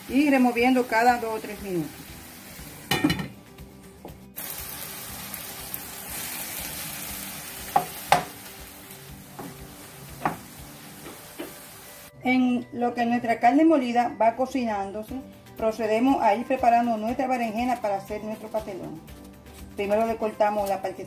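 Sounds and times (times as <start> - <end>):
meat sizzling in a frying pan: 0.0 - 3.4, 4.4 - 12.1.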